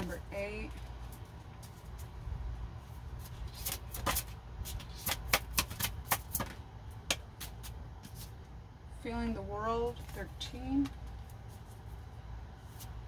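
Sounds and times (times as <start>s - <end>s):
steady low rumble: 0.0s - 5.0s
cards snapping and flicking: 3.6s - 7.8s.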